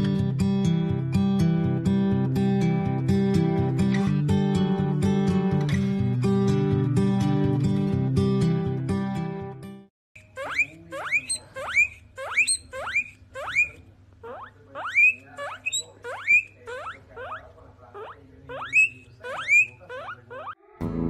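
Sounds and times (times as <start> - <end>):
guinea pig squealing: 10.2 - 20.8.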